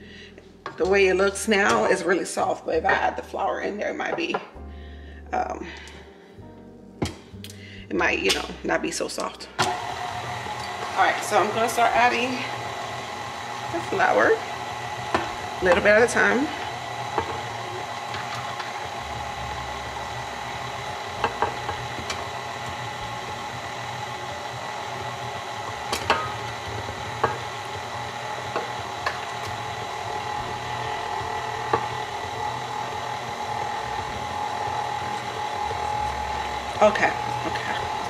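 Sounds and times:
stand mixer motor whine: 0:09.6 - 0:38.0.

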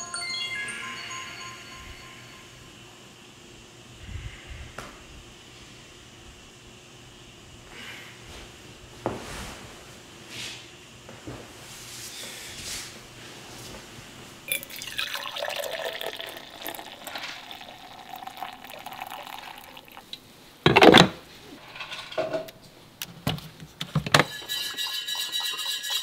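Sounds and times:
coffee pouring into tumbler: 0:14.5 - 0:20.2.

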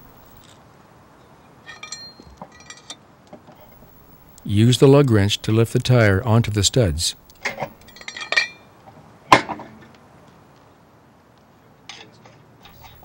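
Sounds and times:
light metallic clinks: 0:01.6 - 0:03.0, 0:07.8 - 0:08.7
sharp metal clank: 0:01.7 - 0:03.0, 0:07.4 - 0:08.7.

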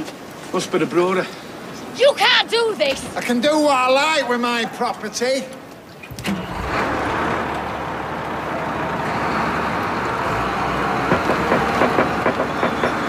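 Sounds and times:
wheel loader diesel engine: 0:06.1 - 0:13.0.

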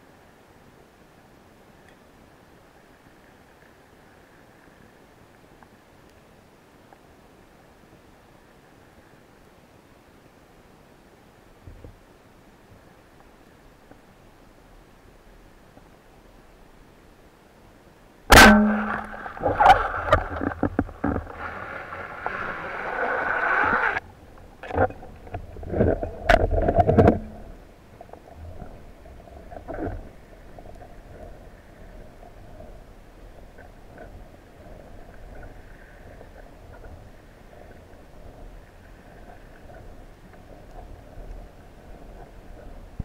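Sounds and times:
faint underwater hiss: 0:00.0 - 0:43.0
speargun shot crack: 0:18.3 - 0:20.0.

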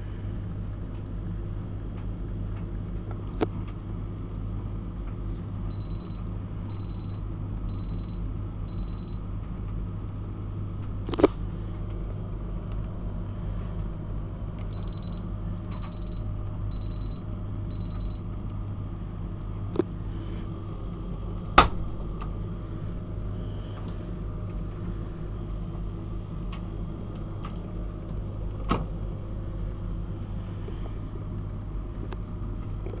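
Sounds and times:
dryer humming: 0:00.0 - 0:33.0
washing machine beeping: 0:05.7 - 0:09.3, 0:14.7 - 0:18.3, 0:27.4 - 0:27.7.

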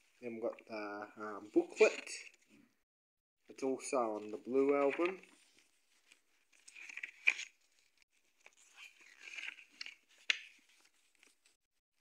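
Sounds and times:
paper pages rustling: 0:03.9 - 0:11.6.

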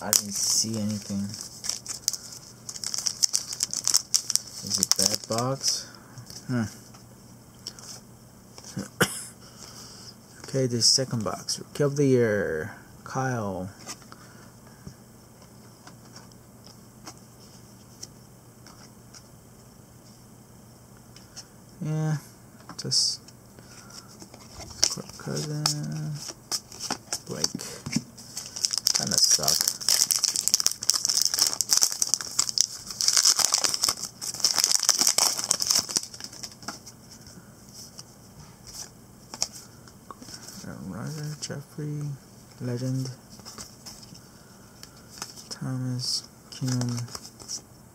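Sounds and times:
foil wrapper crinkling and tearing: 0:00.0 - 0:05.8, 0:28.4 - 0:36.7
low steady hum: 0:00.0 - 0:47.9
cards being flipped: 0:46.6 - 0:47.6.

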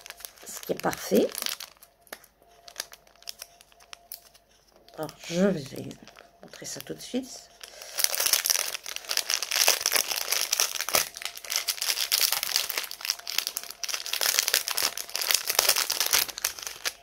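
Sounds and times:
plastic bags crinkling: 0:00.0 - 0:17.0.

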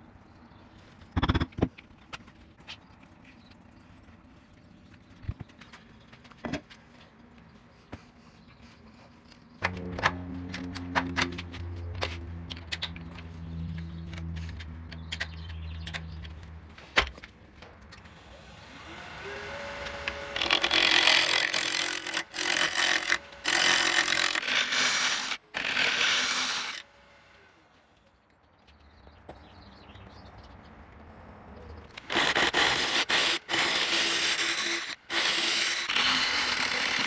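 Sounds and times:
low motor hum: 0:09.6 - 0:16.8
wood lathe spinning whine: 0:18.2 - 0:25.8
turning tool scraping wood: 0:19.7 - 0:26.8.

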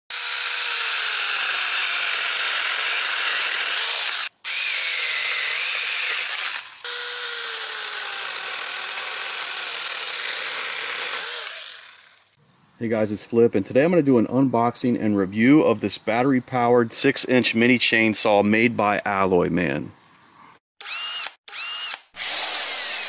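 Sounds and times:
mini chainsaw cutting branches: 0:00.1 - 0:12.4, 0:20.8 - 0:23.0.

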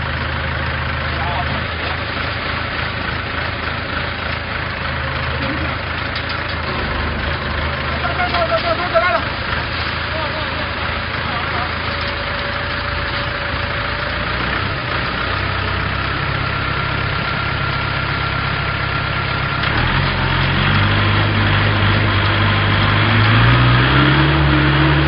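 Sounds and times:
diesel engine revving: 0:00.0 - 0:25.0.

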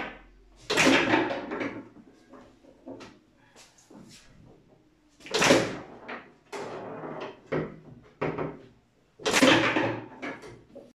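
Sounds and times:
foosball ball bangs: 0:00.0 - 0:01.9, 0:05.2 - 0:06.0, 0:09.2 - 0:10.4
foosball ball clacking on table: 0:09.3 - 0:10.7.

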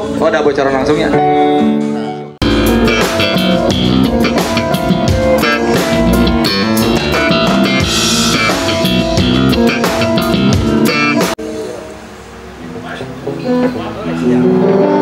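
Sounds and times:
band playing: 0:00.8 - 0:15.0
drum hits: 0:02.4 - 0:11.4.

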